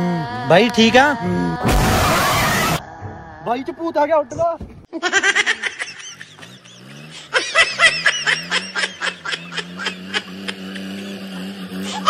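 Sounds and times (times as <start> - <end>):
snickering laughter: 4.9 - 12.0.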